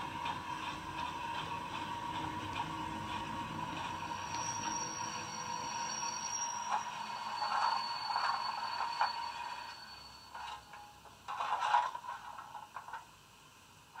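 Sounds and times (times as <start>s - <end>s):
scraping and clattering: 10.3s - 13.1s.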